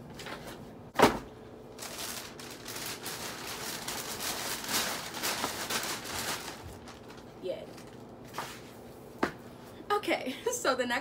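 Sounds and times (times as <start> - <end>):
plastic bag rustling: 1.7 - 8.6.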